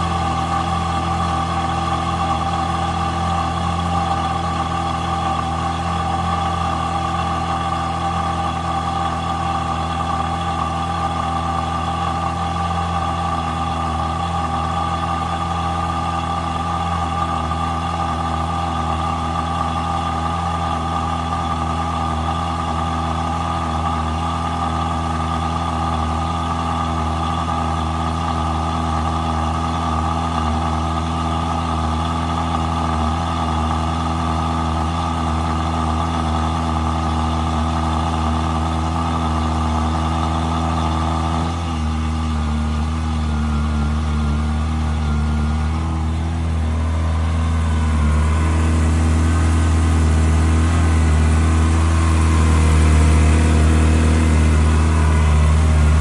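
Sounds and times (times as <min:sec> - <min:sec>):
car engine idling: 0:00.0 - 0:56.0.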